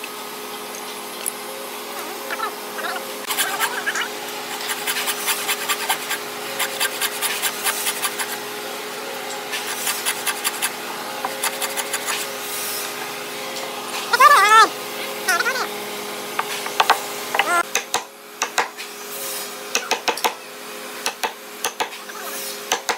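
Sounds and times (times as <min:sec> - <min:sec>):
hand saw rasping through wood: 0:03.2 - 0:08.4, 0:09.5 - 0:12.4.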